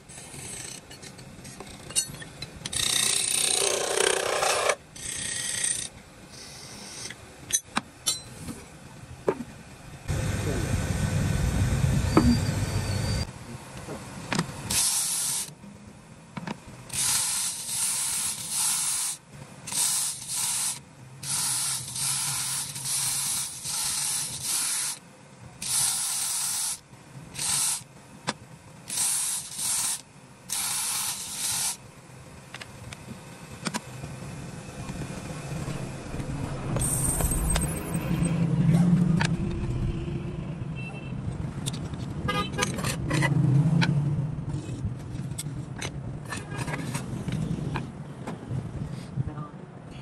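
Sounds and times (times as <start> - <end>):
compressed air hissing bursts: 14.7 - 15.5, 16.9 - 25.0, 25.6 - 26.8, 27.4 - 27.9, 28.9 - 31.8.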